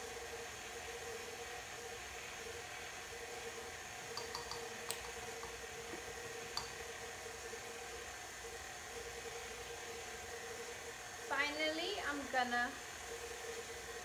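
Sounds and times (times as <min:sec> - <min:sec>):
steady mechanical hum: 0:00.0 - 0:14.0.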